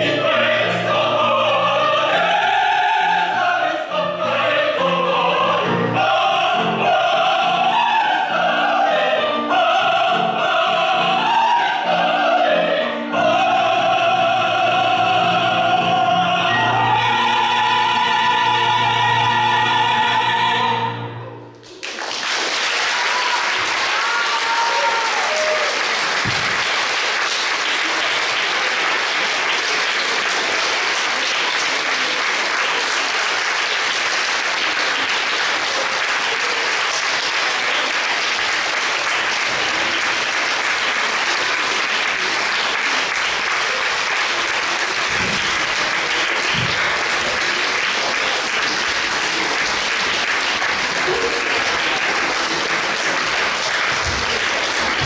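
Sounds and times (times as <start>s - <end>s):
audience applauding: 21.6s - 55.0s.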